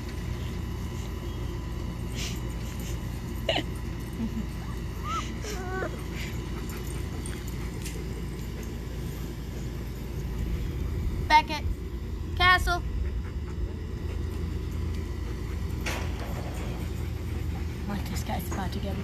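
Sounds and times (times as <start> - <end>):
puppies whimpering: 4.6 - 6.8.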